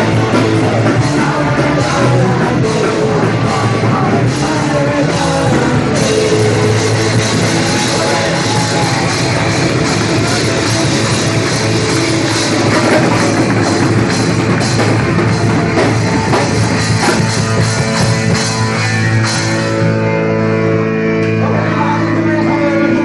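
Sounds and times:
guitar chords ringing: 0.0 - 23.0
punk rock band playing live: 0.0 - 23.0.

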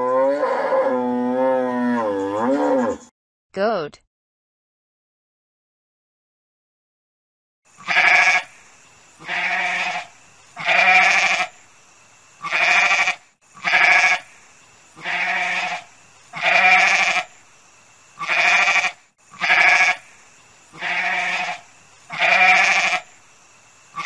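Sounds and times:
goat bleating: 7.8 - 8.4, 9.2 - 10.0, 10.6 - 11.5, 12.4 - 14.2, 15.0 - 15.8, 16.4 - 17.3, 18.2 - 20.0, 20.8 - 23.0.

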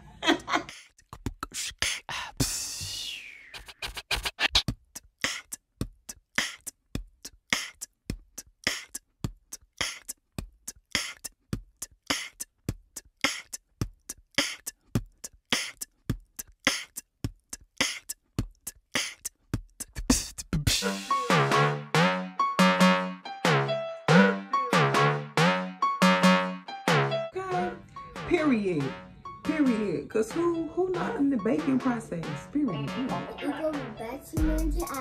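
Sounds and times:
sparse drum beat: 19.6 - 22.2, 26.9 - 35.0.

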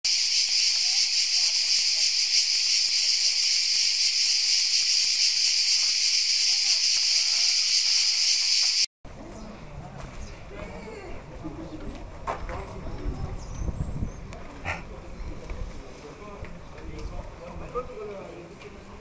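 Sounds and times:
cicadas chirring: 0.0 - 8.9.

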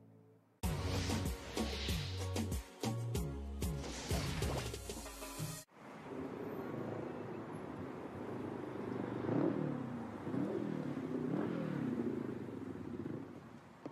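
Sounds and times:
motorcycle engine revving: 7.7 - 13.9.

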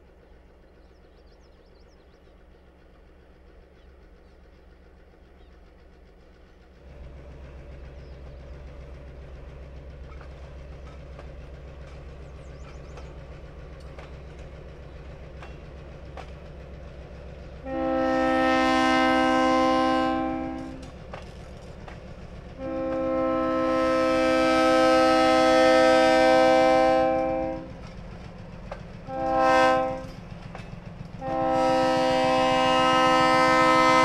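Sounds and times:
diesel locomotive engine drone: 0.0 - 34.0
wheels clicking on rail: 0.3 - 34.0
bird chirps: 0.6 - 2.7, 12.2 - 13.3.

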